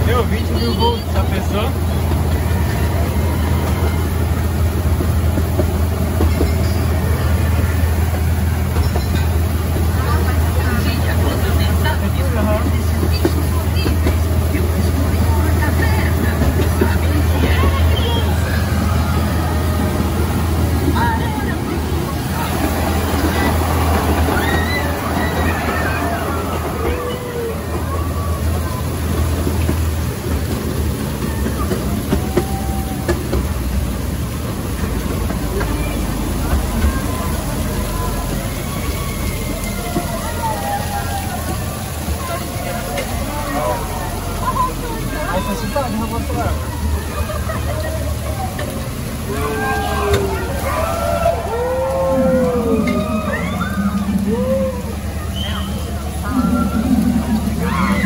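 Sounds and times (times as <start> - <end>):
low engine rumble: 0.0 - 58.0
vehicle rattling: 0.0 - 58.0
low mechanical rumble: 46.2 - 58.0.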